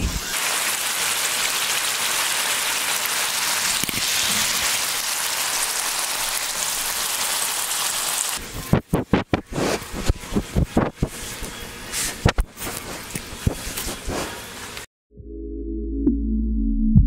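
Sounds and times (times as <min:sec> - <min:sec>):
meat sizzling in frying pan: 0:00.3 - 0:08.4.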